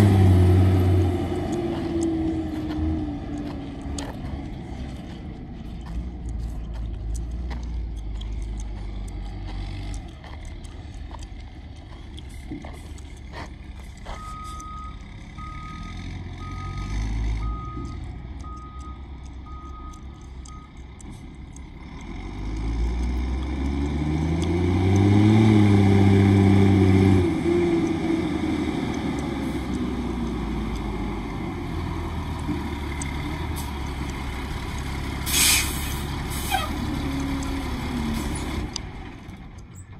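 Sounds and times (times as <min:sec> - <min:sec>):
diesel engine revving: 0:00.0 - 0:39.9
truck backup alarm beeping: 0:14.1 - 0:21.3
air brakes hissing: 0:35.2 - 0:36.8.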